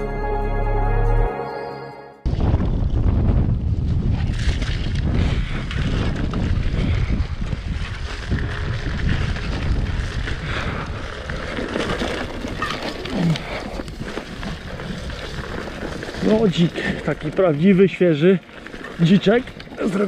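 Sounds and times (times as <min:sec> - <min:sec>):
wind on microphone: 0:02.3 - 0:16.2
bike rattling: 0:02.3 - 0:20.0
bike tyres rolling over dirt: 0:02.3 - 0:20.0.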